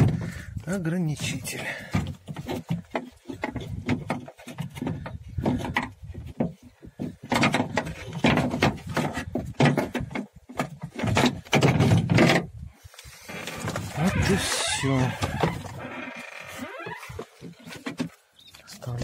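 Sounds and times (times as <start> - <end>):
knocks and rattles on sheet metal: 1.7 - 12.5.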